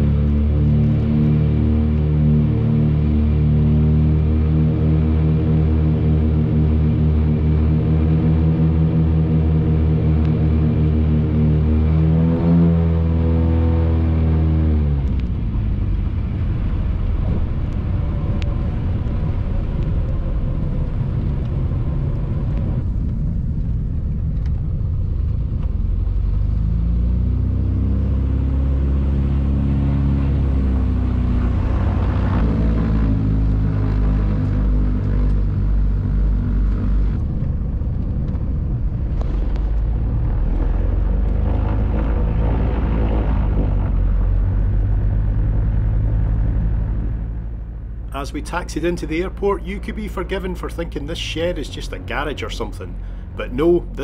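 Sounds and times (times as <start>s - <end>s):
slow pulsing engine throb: 0.0s - 54.0s
aircraft piston engines running: 28.5s - 54.0s.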